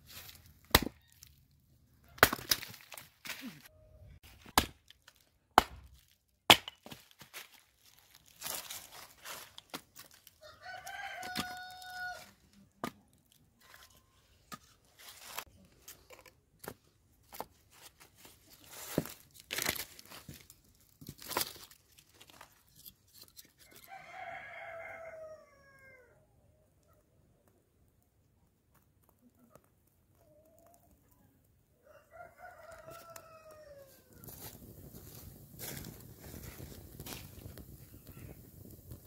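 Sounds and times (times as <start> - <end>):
rooster crowing: 10.4 - 12.4, 23.8 - 26.2, 31.8 - 34.4.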